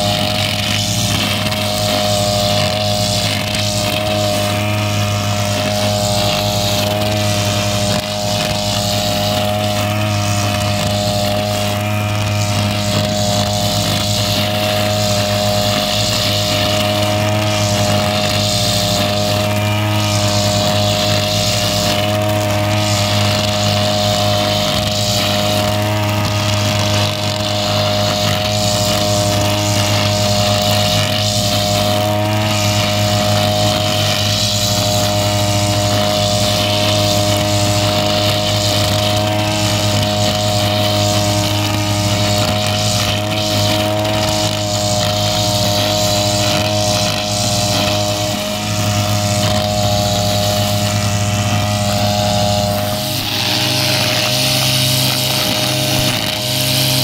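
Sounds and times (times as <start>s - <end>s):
brush cutter engine running: 0.0s - 57.0s.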